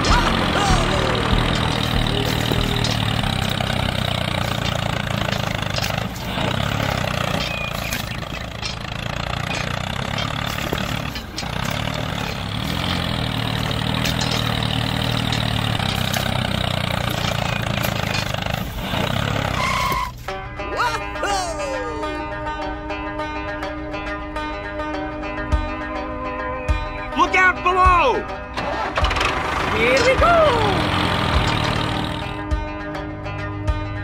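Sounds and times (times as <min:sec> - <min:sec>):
tractor engine running: 0:00.0 - 0:21.1, 0:27.2 - 0:32.7.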